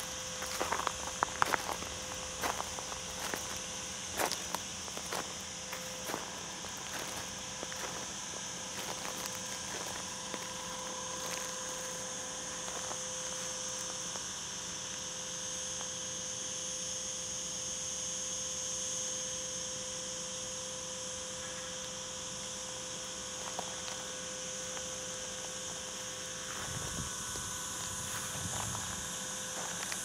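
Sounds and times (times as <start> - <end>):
faint steady hum: 0.0 - 30.0
high-pitched insect chorus: 0.0 - 30.0.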